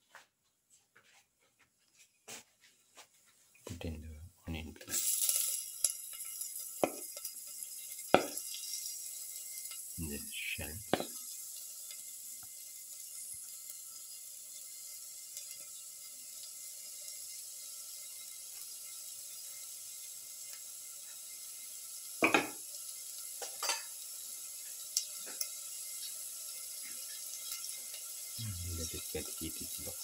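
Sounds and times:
onions sizzling in oil: 0:04.9 - 0:30.0
utensil knocking on pan: 0:08.2 - 0:08.4, 0:10.9 - 0:11.2, 0:22.2 - 0:22.6.

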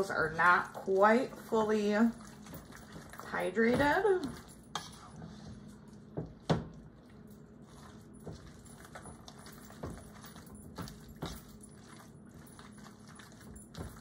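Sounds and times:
light clinks and knocks: 0:08.2 - 0:14.0.

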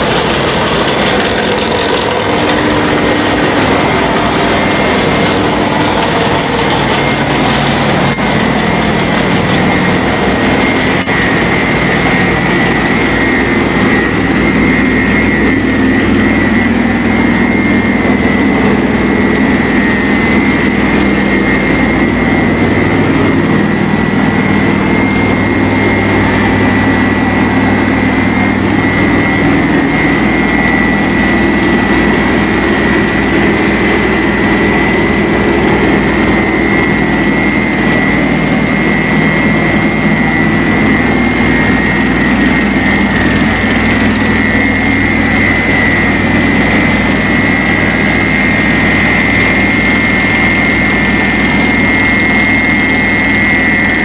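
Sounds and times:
high steady whine: 0:00.0 - 0:54.0
machinery low hum: 0:00.0 - 0:54.0.

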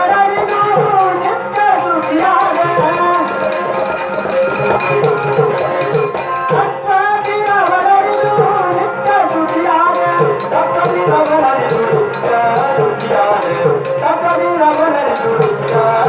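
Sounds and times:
hand drum beat: 0:00.4 - 0:16.0
small ringing cymbals: 0:00.4 - 0:16.0
man and group singing devotional song: 0:05.3 - 0:16.0.

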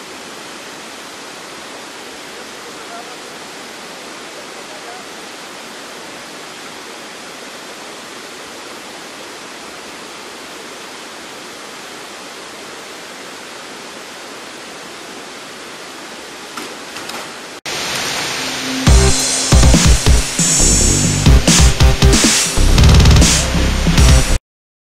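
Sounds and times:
water rushing over spillway: 0:00.0 - 0:23.4
electronic music: 0:18.0 - 0:24.4.

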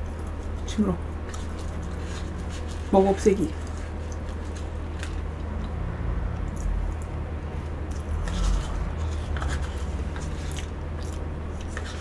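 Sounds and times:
chewing cake: 0:00.0 - 0:02.9, 0:03.5 - 0:05.8, 0:06.4 - 0:12.0
low steady hum: 0:00.0 - 0:12.0
metal spoon scraping paper cup: 0:08.2 - 0:10.6.

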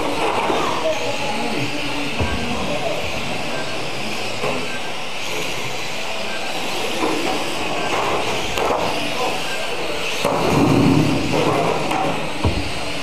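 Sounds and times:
small motors whirring: 0:00.0 - 0:13.0.

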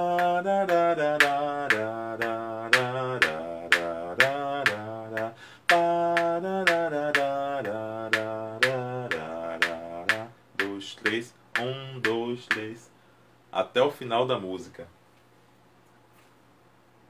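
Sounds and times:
sharp beat clicks: 0:00.0 - 0:12.8
man singing: 0:00.0 - 0:12.9.

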